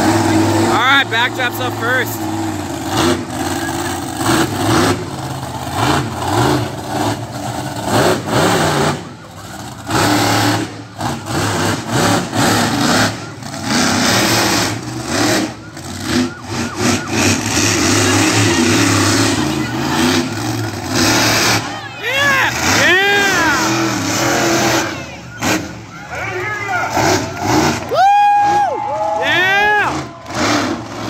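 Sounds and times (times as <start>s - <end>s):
monster truck engine revving: 0.0s - 31.0s.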